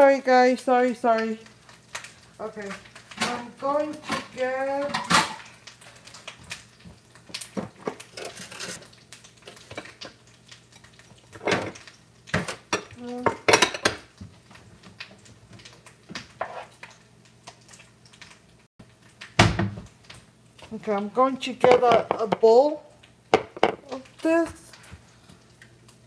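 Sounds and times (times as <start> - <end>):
crockery clinking and knocking: 23.4 - 23.8.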